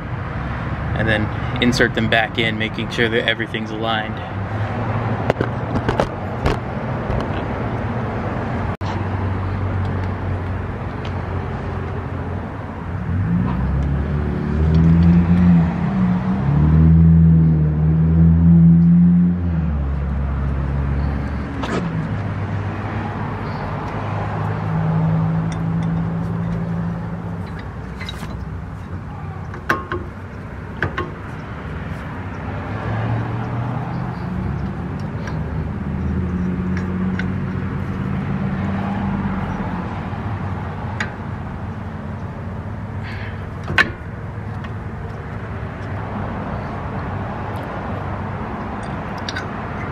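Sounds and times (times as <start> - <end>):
vehicle engine running: 18.8 - 49.9.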